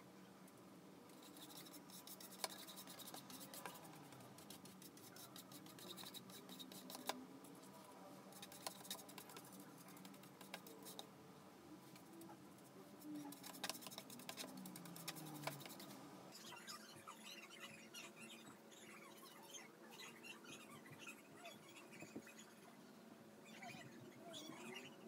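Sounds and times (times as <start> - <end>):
paintbrush scratching on canvas: 1.1 - 11.1, 12.6 - 21.2.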